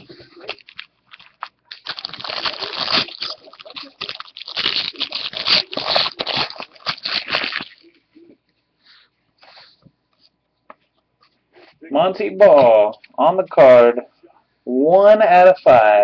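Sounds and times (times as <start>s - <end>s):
foil wrapper tearing and crinkling: 0.0s - 8.0s.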